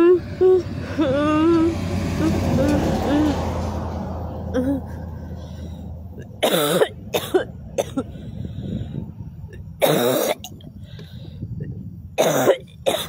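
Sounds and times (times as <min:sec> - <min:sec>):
woman sobbing: 0:04.5 - 0:05.1.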